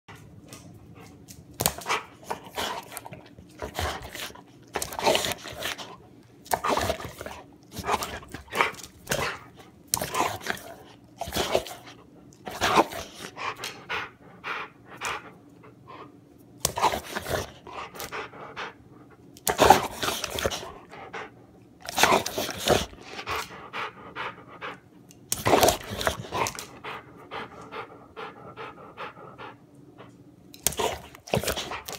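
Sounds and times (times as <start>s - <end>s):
dog panting: 12.6s - 16.2s, 16.9s - 19.2s, 19.9s - 21.4s, 22.2s - 25.0s, 25.7s - 31.9s.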